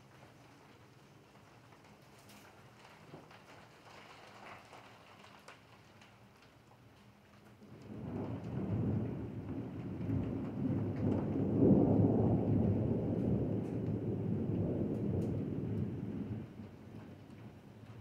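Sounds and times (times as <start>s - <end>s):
rain falling: 0.0s - 18.0s
rumble of thunder: 7.6s - 18.0s.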